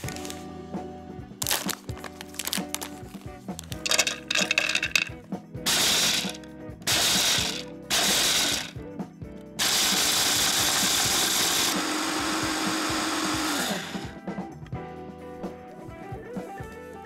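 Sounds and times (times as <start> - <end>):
electric chopper grinding almonds: 3.8 - 5.1, 5.7 - 8.8, 9.6 - 14.1.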